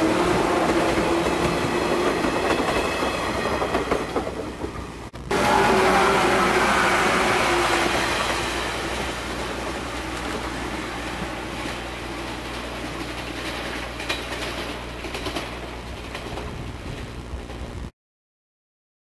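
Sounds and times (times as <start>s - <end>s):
wheels clicking over rail joints: 0.0s - 4.9s, 8.1s - 17.6s
electric train running on track: 0.0s - 17.2s.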